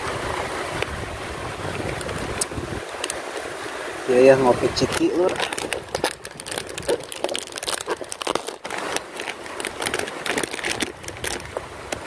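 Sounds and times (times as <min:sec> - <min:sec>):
plastic snack packet crinkling: 0:04.8 - 0:11.6.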